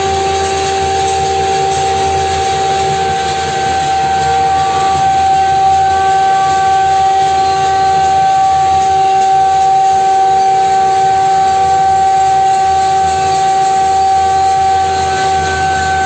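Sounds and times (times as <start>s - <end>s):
dense din of noise: 0.0s - 16.0s
horn-like tone: 0.0s - 16.0s.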